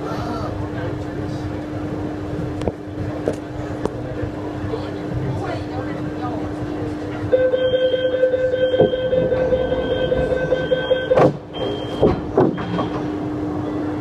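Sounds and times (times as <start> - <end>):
train hum: 0.0 - 14.0
held electronic tone: 7.3 - 12.0.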